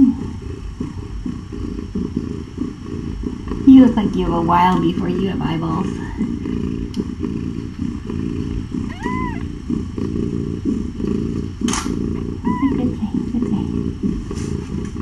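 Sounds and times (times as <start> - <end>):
cat purring: 0.0 - 15.0
kitten squeaky mew: 8.8 - 9.5, 11.7 - 13.1.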